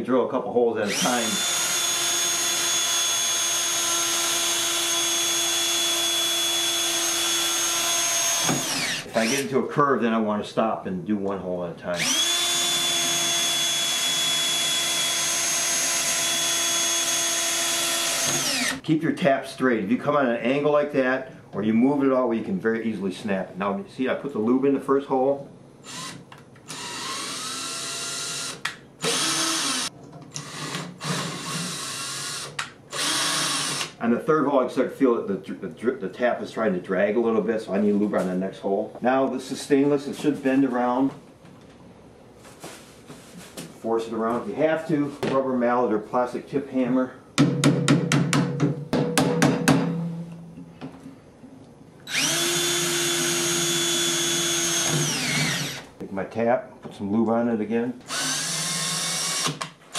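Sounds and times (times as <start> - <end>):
cordless drill whining: 0.8 - 9.5, 12.0 - 18.8, 25.8 - 34.0, 52.1 - 55.9, 58.1 - 59.7.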